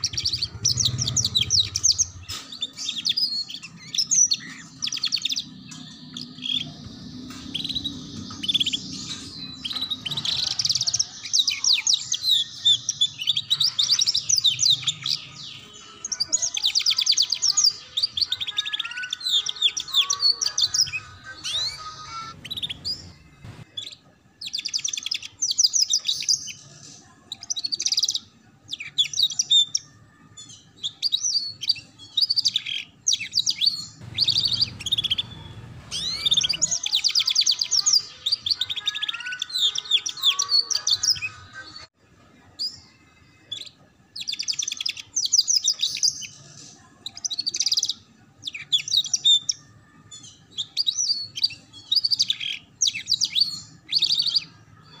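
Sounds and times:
canary singing rapid trills: 0.0 - 26.6, 30.5 - 41.9.

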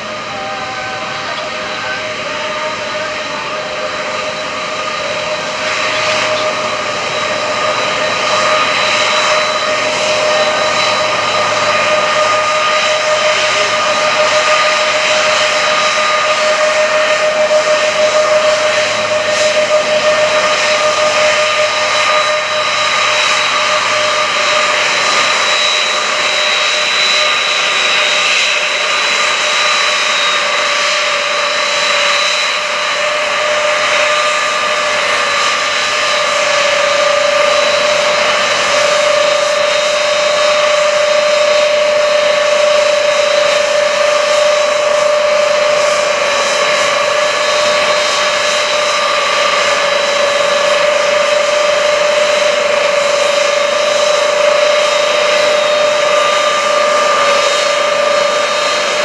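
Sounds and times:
jet engines whining: 0.0 - 59.0.

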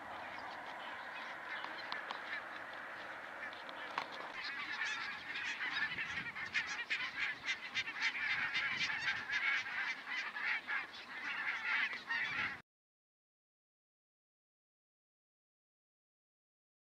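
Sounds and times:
flock of geese calling: 0.0 - 12.6.

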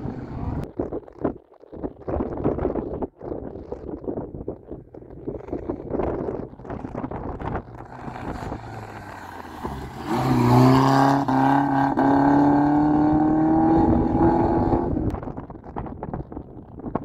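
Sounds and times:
rally car engine at full throttle: 0.0 - 0.6, 5.5 - 16.8.

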